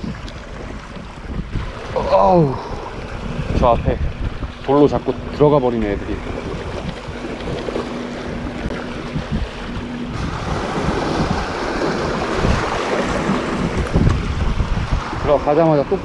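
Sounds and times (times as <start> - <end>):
wind buffeting microphone: 0.0 - 16.0
waves splashing on rocks: 10.1 - 16.0.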